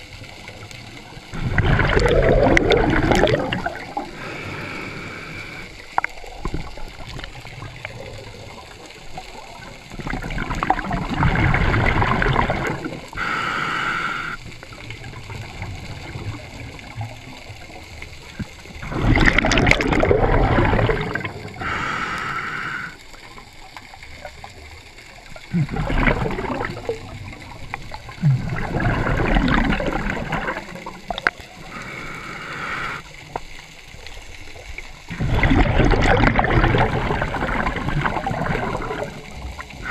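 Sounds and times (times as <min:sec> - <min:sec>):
gurgling exhaled bubbles: 0:00.0 - 0:39.9
hissing regulator inhale: 0:04.0 - 0:06.0, 0:13.1 - 0:14.5, 0:21.5 - 0:23.1, 0:31.6 - 0:33.2.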